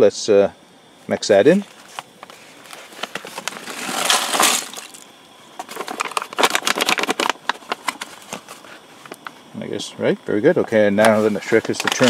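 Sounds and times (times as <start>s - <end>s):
foil pouch crinkling: 1.6s - 5.0s, 5.6s - 8.8s, 11.0s - 12.0s.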